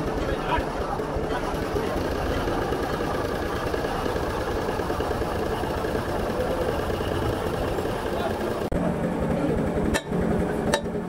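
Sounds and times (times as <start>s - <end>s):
bulldozer diesel engine running: 0.0s - 11.0s.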